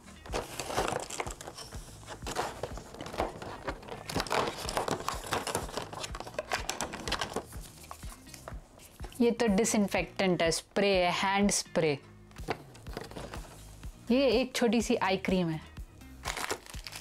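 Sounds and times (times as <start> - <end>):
packaging crinkling: 0.2 - 8.4, 16.2 - 17.0
cardboard tearing: 0.3 - 7.5, 16.2 - 17.0.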